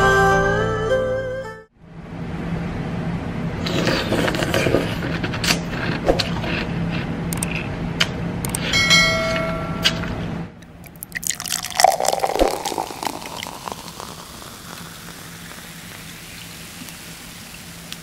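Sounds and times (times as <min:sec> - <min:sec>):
liquid pouring: 0:10.6 - 0:17.7
faint trickle: 0:10.8 - 0:17.7
ice cubes clinking in glass: 0:10.9 - 0:15.5.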